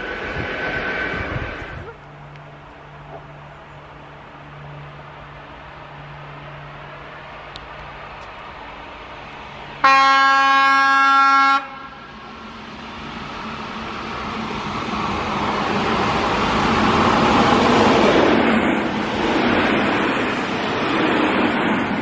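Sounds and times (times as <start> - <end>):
train rumbling past: 0.0 - 22.0
train horn blast: 9.8 - 12.1.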